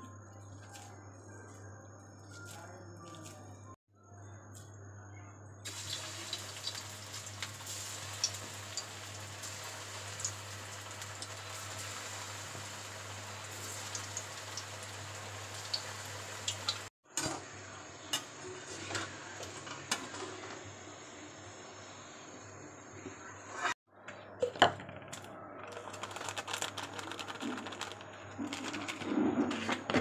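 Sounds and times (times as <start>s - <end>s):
dough deep-frying in oil: 5.6s - 16.9s
oil popping and crackling: 5.7s - 16.9s, 25.1s - 29.1s.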